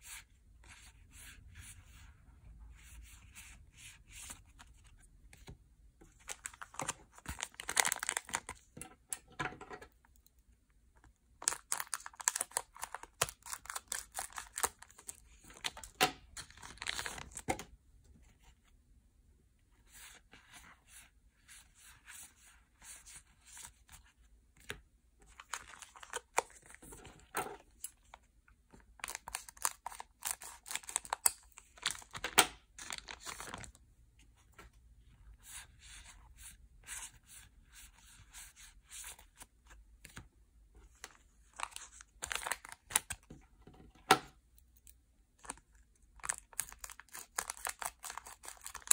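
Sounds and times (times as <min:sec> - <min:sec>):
wrappers being torn and crinkling: 0:06.4 - 0:08.6, 0:11.4 - 0:17.4, 0:29.0 - 0:32.2, 0:32.8 - 0:33.7, 0:46.2 - 0:48.9.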